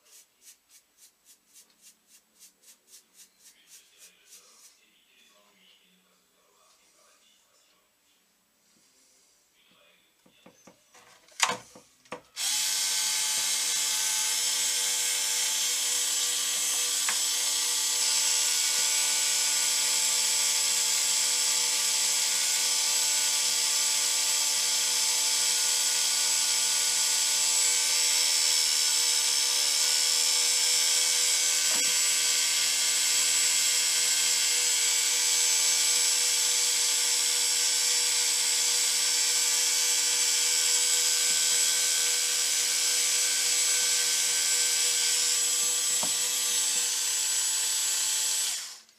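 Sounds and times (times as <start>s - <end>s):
electric drill motor whine: 12.4s - 48.9s.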